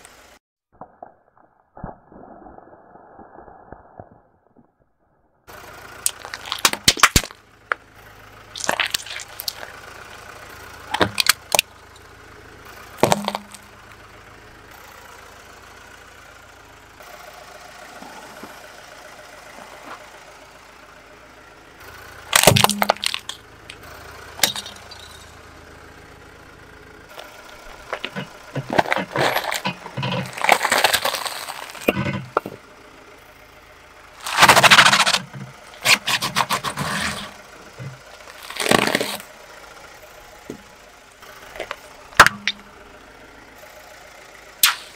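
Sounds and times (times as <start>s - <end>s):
objects cracking under car tyre: 0.8s - 12.2s, 12.8s - 14.8s, 22.2s - 25.5s, 27.1s - 32.8s, 34.1s - 39.6s, 40.4s - 42.9s
cabbage crunching under tyre: 5.6s - 7.8s, 8.5s - 12.0s, 12.9s - 13.8s, 22.3s - 25.3s, 27.1s - 32.6s, 34.2s - 39.4s, 41.4s - 42.6s.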